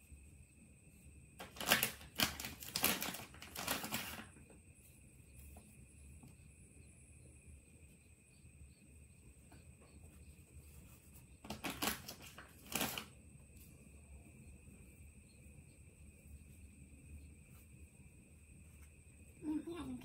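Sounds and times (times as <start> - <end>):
plastic diaper crinkling: 1.4 - 4.3, 11.4 - 13.1.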